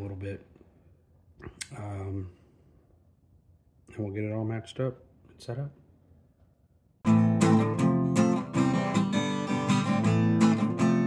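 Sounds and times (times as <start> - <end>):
guitar strumming chords: 7.1 - 11.0.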